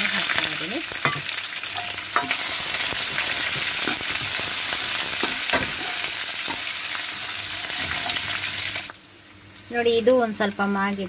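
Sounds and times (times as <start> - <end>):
spices sizzling in hot oil: 0.0 - 11.0
steel ladle scraping pan: 7.5 - 8.5.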